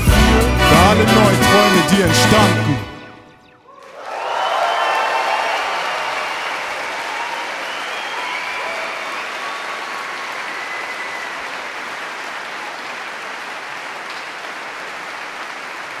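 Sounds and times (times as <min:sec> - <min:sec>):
audience applauding: 0:03.7 - 0:16.0.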